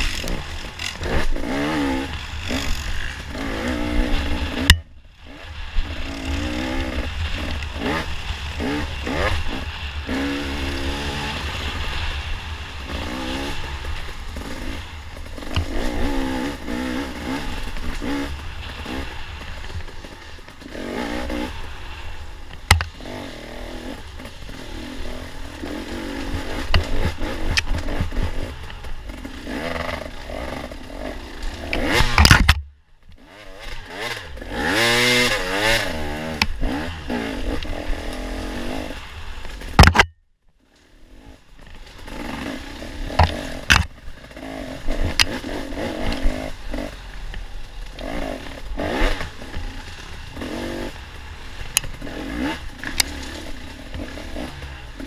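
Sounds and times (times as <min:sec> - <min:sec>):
dirt bike engine revving: 0:00.0 - 0:32.6, 0:33.2 - 0:40.1, 0:41.0 - 0:55.0
bike clattering and knocking: 0:43.1 - 0:44.0.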